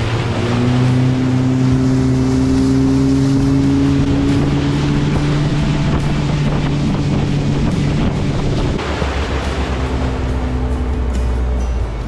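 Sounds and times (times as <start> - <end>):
motorboat engine drone: 0.0 - 12.0
water noise: 0.0 - 12.0
wind: 0.0 - 12.0.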